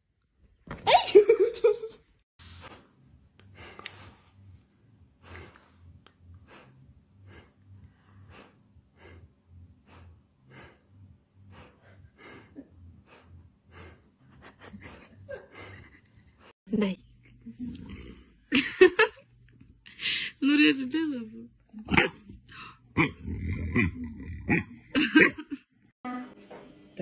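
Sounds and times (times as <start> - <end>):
soft puffs of breath: 2.5 - 15.8.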